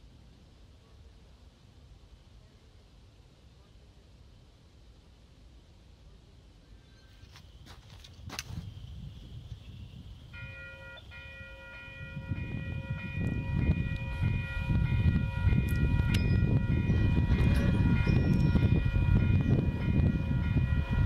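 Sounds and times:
rumble of engines and wheels: 0.0s - 21.0s
locomotive air horn chord: 10.3s - 17.9s.

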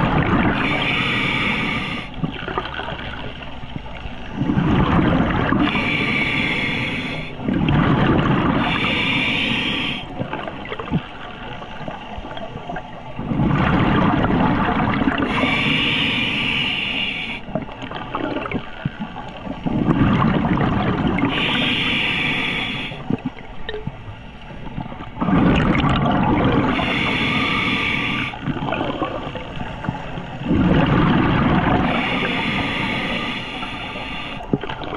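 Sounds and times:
bubbling exhaled air: 0.0s - 3.1s, 4.3s - 11.0s, 13.2s - 23.5s, 24.6s - 34.9s
diver breathing through regulator: 0.3s - 2.2s, 4.4s - 10.2s, 14.7s - 17.5s, 19.8s - 23.1s, 25.2s - 28.4s, 29.4s - 34.6s.

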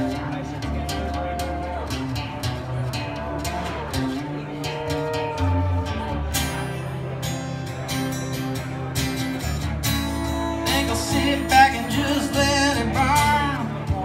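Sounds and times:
strummed acoustic guitar: 0.0s - 14.0s
man singing: 10.4s - 14.0s.

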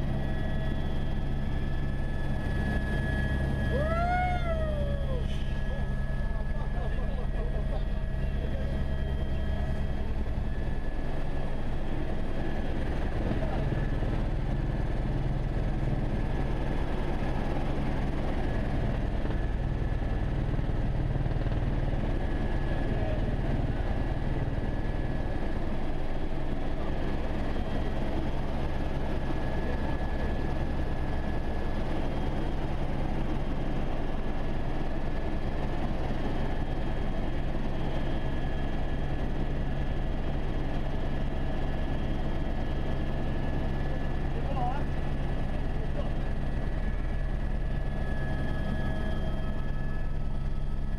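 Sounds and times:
faint high whine: 0.0s - 19.9s, 41.7s - 50.9s
helicopter rotor and turbine drone: 0.0s - 50.9s.

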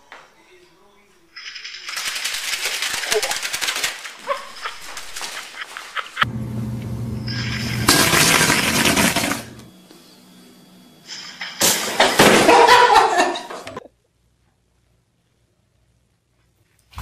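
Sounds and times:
noisy scuffle: 1.1s - 6.2s
people laughing: 4.2s - 6.3s, 12.3s - 13.9s.

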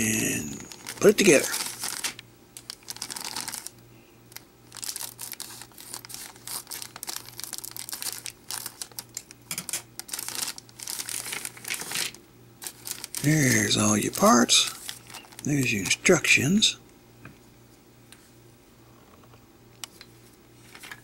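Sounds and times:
plastic bag crinkling: 0.3s - 16.1s.

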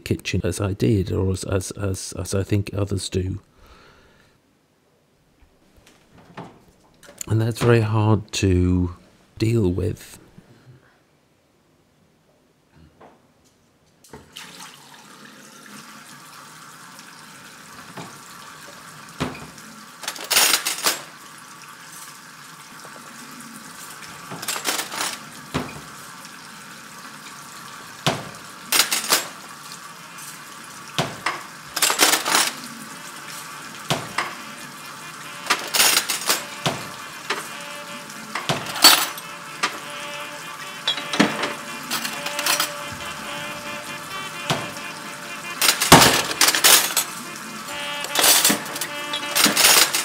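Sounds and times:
china cups and cutlery clinking: 31.8s - 32.6s, 35.4s - 36.7s, 38.4s - 39.9s, 40.8s - 42.9s, 45.6s - 47.1s, 48.1s - 50.0s.

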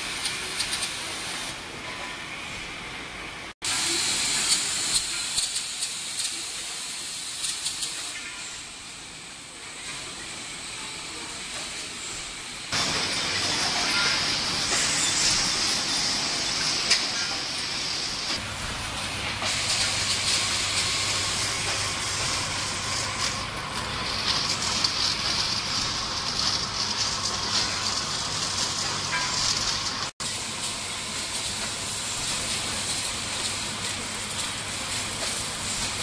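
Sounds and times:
machinery hiss with light ticks: 3.7s - 9.0s, 30.4s - 36.0s.

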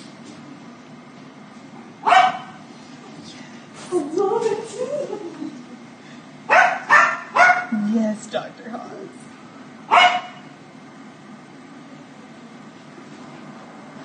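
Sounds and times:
dog barking: 2.0s - 2.6s, 6.5s - 7.7s, 9.9s - 10.5s.

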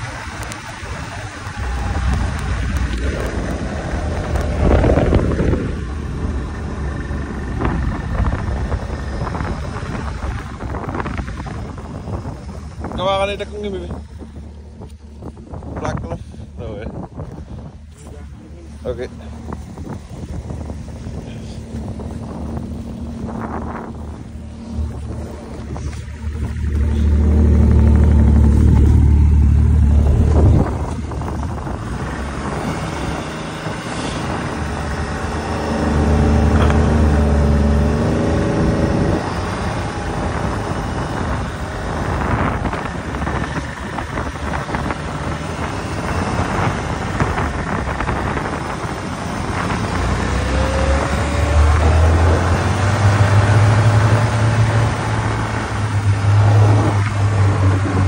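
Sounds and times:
snowmobile engine revving: 0.0s - 58.0s.

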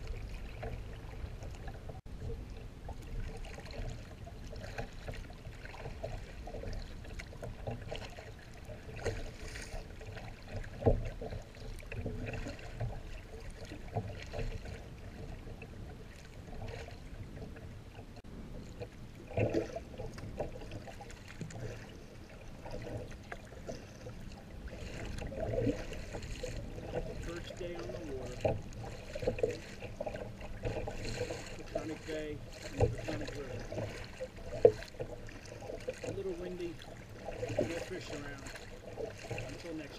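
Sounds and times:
water splashing against kayak hull: 0.0s - 39.9s.

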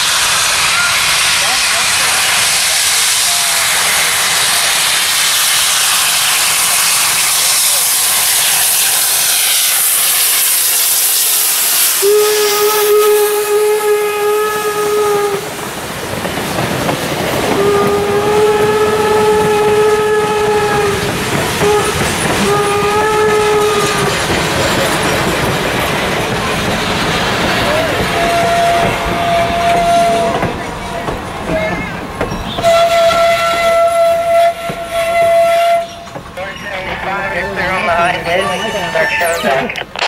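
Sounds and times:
steam whistle blasts: 0.0s - 15.6s, 17.5s - 24.2s, 27.7s - 30.5s, 32.6s - 36.1s
loud hiss of steam: 0.0s - 36.7s
train cars clickety-clack over rails: 0.0s - 39.2s.

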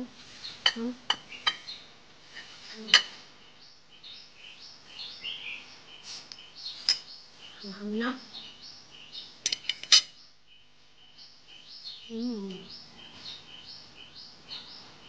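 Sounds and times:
birds chirping faintly: 0.0s - 15.0s
cutlery clinking on dishes: 0.7s - 1.7s, 9.4s - 10.2s.

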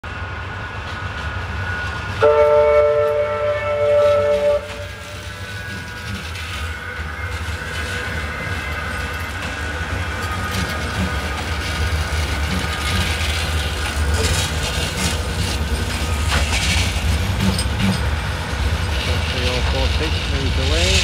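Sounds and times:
trams rumbling past: 0.0s - 21.0s
tram horn two-note tone: 2.2s - 5.2s.

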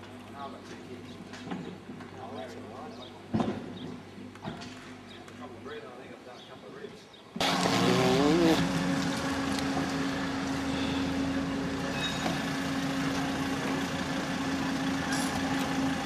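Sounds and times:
van engine idling: 8.4s - 16.0s.

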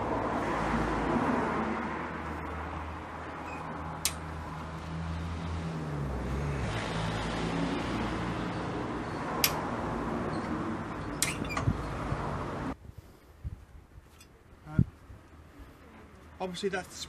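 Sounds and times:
traffic hum: 0.0s - 17.0s
jack metallic clicks: 4.0s - 4.3s, 9.4s - 9.7s.

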